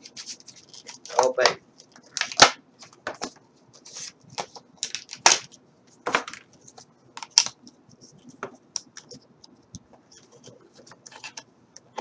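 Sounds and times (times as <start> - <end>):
plastic packaging crinkling and tearing: 0.0 - 3.0, 4.0 - 5.5.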